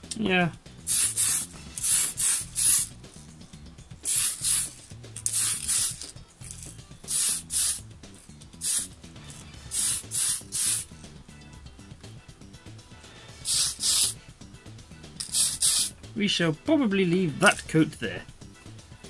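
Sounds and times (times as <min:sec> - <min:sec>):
spray paint can hissing: 0:00.8 - 0:02.9, 0:04.0 - 0:10.9, 0:13.4 - 0:14.2, 0:15.2 - 0:16.0.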